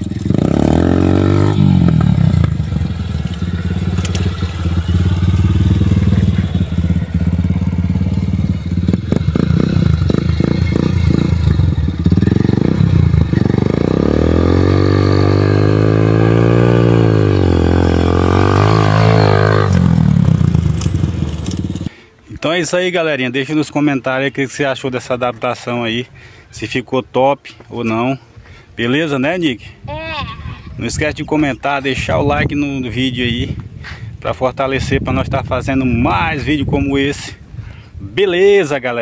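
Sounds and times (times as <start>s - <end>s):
dirt bike engine revving: 0.0s - 21.9s.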